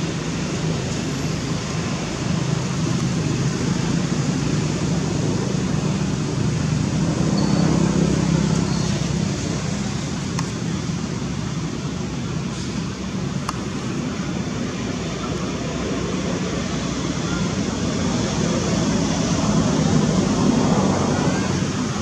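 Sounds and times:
constant hiss: 0:07.6 - 0:22.0.

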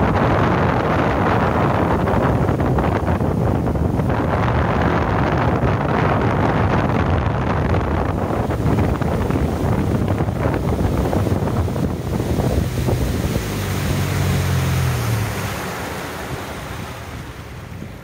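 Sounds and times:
outboard engine running: 0:00.0 - 0:18.0
water rushing in boat wake: 0:00.0 - 0:18.0
wind noise on microphone: 0:00.0 - 0:18.0.

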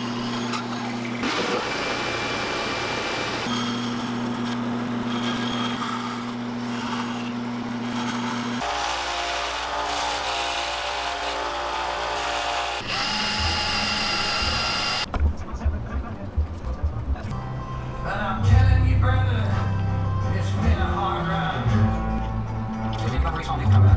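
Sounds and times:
bandsaw running: 0:00.0 - 0:15.1
high-pitched sander: 0:12.2 - 0:15.1
cordless drill spinning up: 0:12.8 - 0:15.1.

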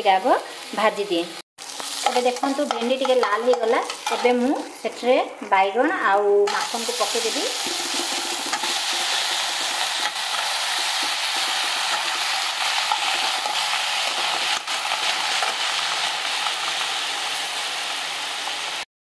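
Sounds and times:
vegetables sizzling in hot oil: 0:00.0 - 0:18.9
steel spatula stirring: 0:01.7 - 0:05.0, 0:06.5 - 0:14.7.

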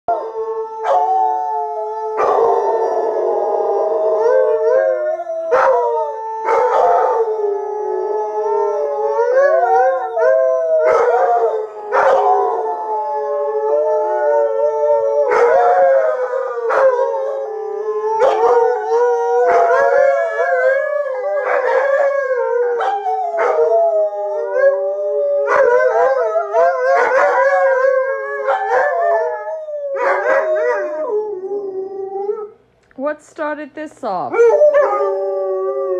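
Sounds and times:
dogs howling: 0:00.1 - 0:32.6, 0:34.3 - 0:35.9
dogs yipping: 0:25.5 - 0:29.3.

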